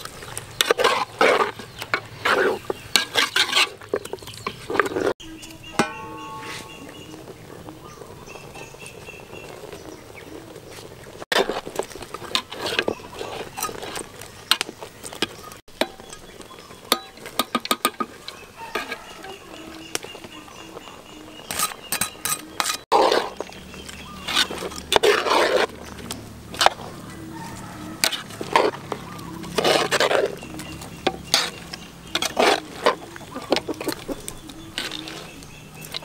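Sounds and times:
scraping stir: 0.1 - 7.4, 10.6 - 36.0
metal ladle clinking on pot: 5.7 - 7.0.

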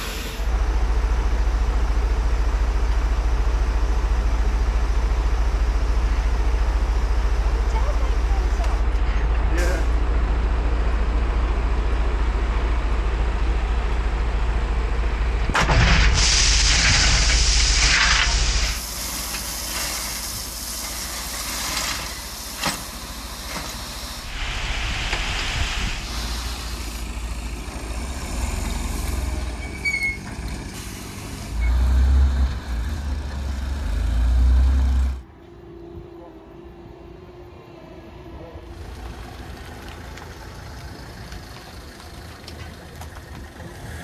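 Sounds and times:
loud hiss of air: 0.0 - 0.5, 15.8 - 27.4, 30.6 - 31.9
diesel truck engine running: 0.0 - 35.2, 38.3 - 44.0
gravel sliding off truck bed: 15.6 - 33.0.

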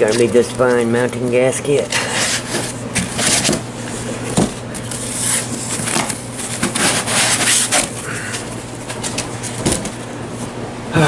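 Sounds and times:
styrofoam and cardboard rustling: 1.9 - 10.0.

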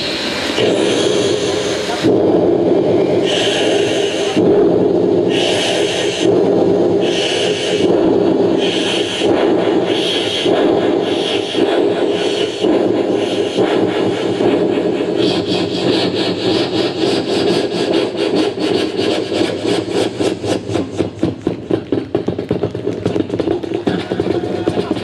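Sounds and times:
man imitating steam train: 0.0 - 22.1, 23.7 - 25.0.

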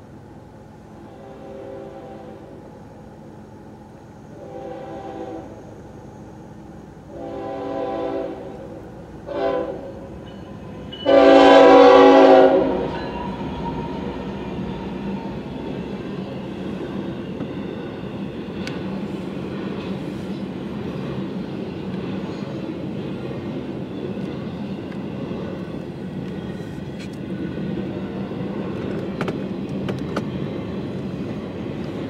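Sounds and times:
train wheels rumbling on rail: 0.0 - 32.0
train horn blasts: 1.0 - 2.6, 4.3 - 5.7, 7.1 - 14.2.

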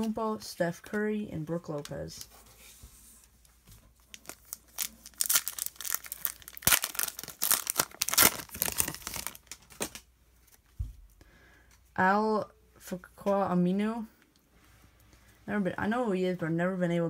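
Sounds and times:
foil wrapper tearing and crinkling: 4.1 - 10.0.

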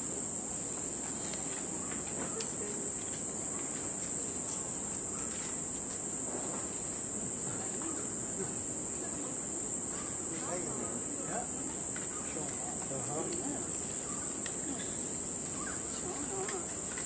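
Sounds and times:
high-pitched insect drone: 0.1 - 17.0
rustles: 0.6 - 8.6.

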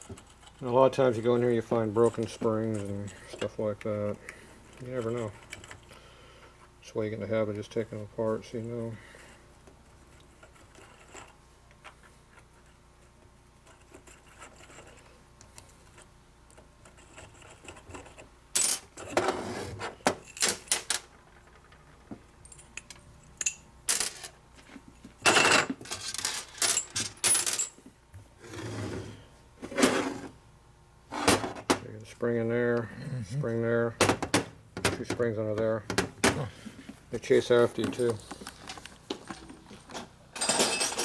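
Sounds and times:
metal parts and tools clinking: 22.4 - 24.4, 25.2 - 27.8, 37.8 - 41.0.

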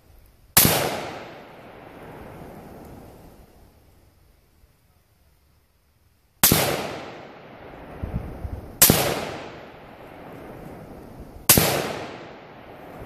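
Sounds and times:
gunshot echo: 0.6 - 2.0, 6.4 - 7.6, 8.8 - 10.0, 11.5 - 13.0
rifle shots: 0.6 - 2.0, 6.4 - 7.6, 8.8 - 10.4, 11.5 - 13.0.

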